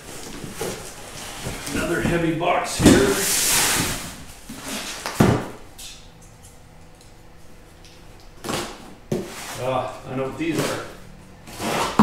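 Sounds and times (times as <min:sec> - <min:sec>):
scraping rustle: 0:00.0 - 0:05.0, 0:09.2 - 0:12.0.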